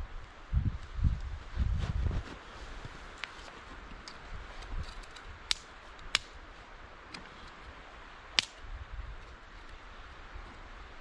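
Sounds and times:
campfire crackling: 2.3 - 11.0
sharp wood snaps: 5.1 - 6.4, 8.4 - 8.6.

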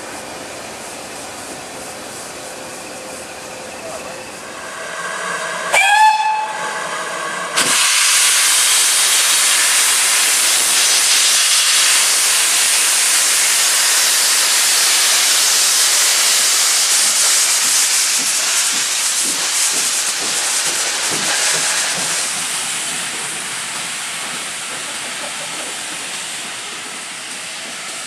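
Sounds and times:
loud steady steam hiss: 0.0 - 28.0
steam locomotive whistle: 5.1 - 9.7.

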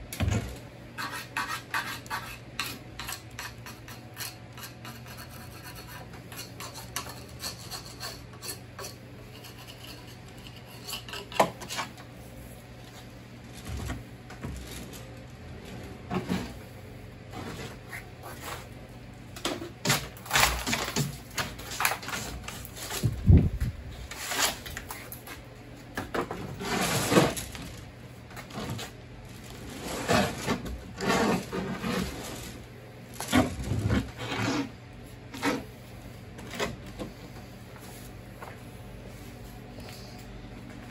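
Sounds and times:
tool scraping statue surface: 1.0 - 12.0, 29.8 - 32.4, 33.7 - 35.7.

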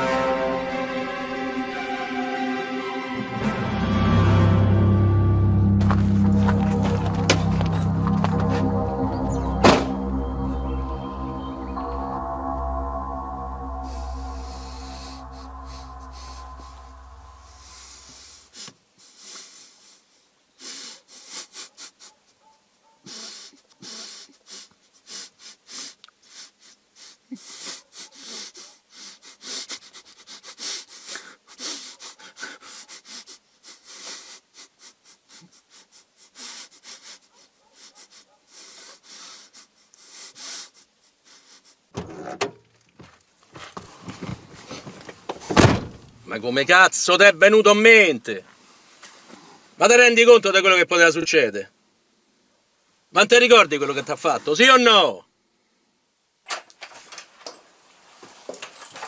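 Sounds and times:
loud thud: 9.6 - 10.1, 45.4 - 46.2
man breathing heavily: 23.0 - 41.9.

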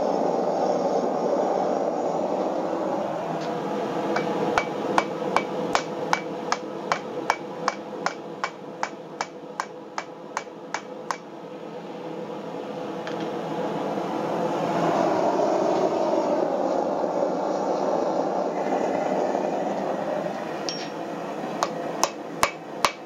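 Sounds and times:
hammer blows on anvil ringing: 4.2 - 11.2, 20.7 - 21.0.

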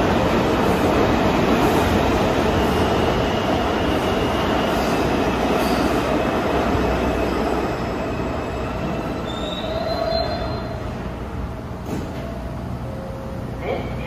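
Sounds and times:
subway train rumble: 0.0 - 14.0
high wheel squeal: 9.1 - 10.9.

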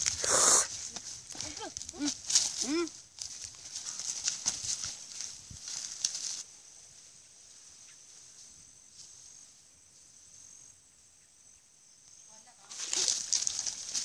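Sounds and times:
rustling noise: 0.0 - 6.5, 12.6 - 14.0
insects trilling: 0.0 - 14.0.

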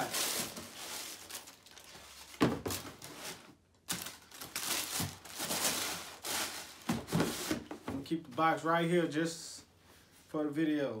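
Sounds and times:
cardboard box rustling: 0.0 - 7.9.

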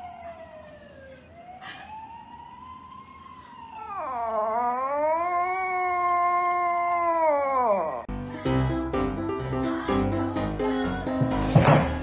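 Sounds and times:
dog howling: 3.8 - 8.1.

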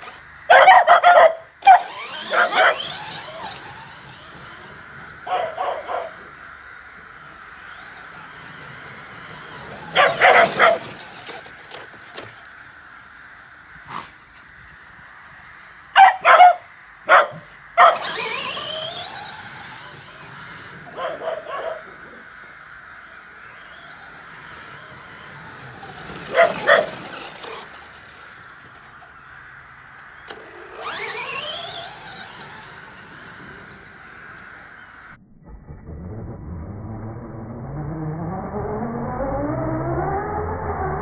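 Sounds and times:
electric motor whining: 0.0 - 13.1, 17.1 - 35.2
dogs barking: 0.5 - 3.8, 5.1 - 6.5, 9.8 - 11.4, 15.9 - 20.0, 20.6 - 22.3, 26.1 - 27.6.

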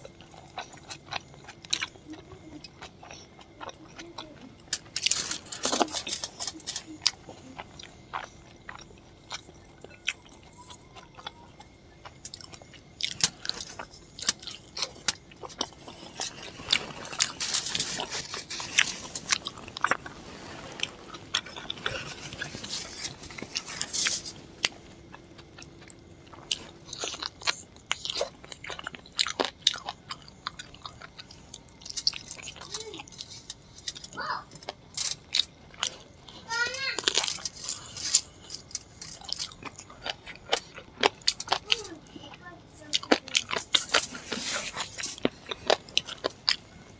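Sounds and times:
close chewing and biting: 0.0 - 46.9.

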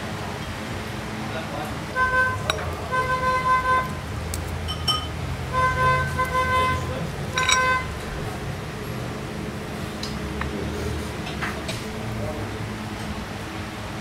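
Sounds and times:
low traffic rumble: 0.0 - 14.0
vehicle horn honking: 1.9 - 4.0, 5.5 - 8.0
cutlery clicking on a plate: 7.4 - 7.7.

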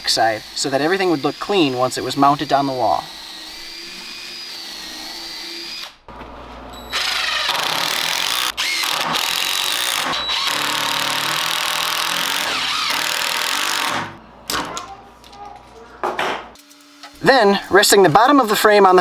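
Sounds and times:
cordless drill whining: 0.0 - 6.0, 6.8 - 14.1
impact driver hammering screws: 6.9 - 14.1.

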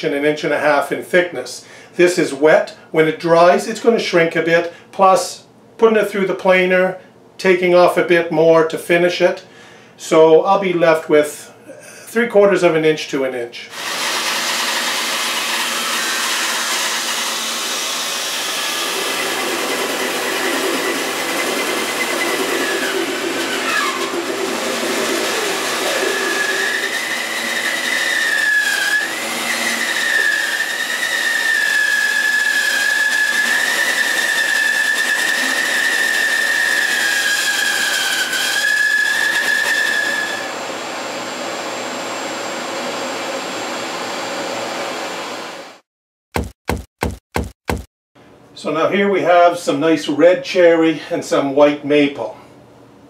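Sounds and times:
bandsaw cutting wood: 13.7 - 42.2.

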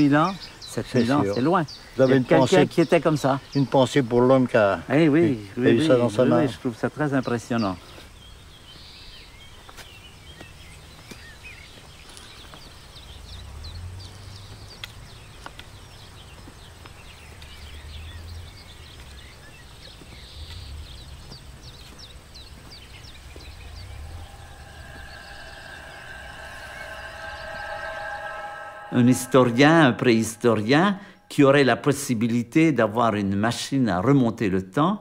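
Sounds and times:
birds chirping: 0.0 - 31.6
wind rumble on microphone: 12.7 - 30.3
steady held tones: 23.1 - 31.6.

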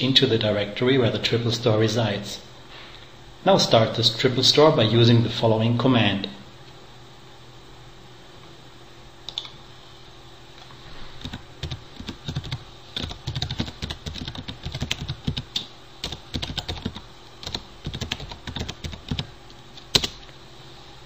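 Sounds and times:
typing on a keyboard: 11.2 - 19.3.

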